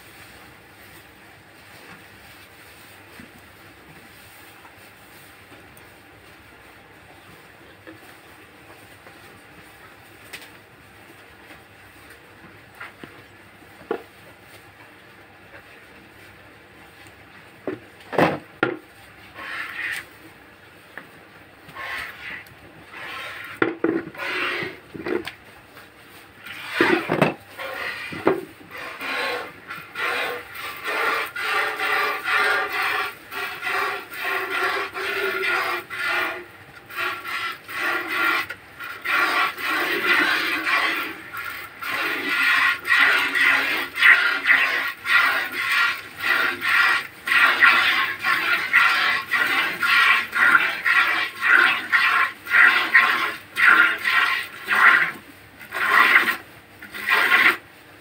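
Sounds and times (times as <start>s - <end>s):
milk squirting into a bucket: 26.4s - 57.6s.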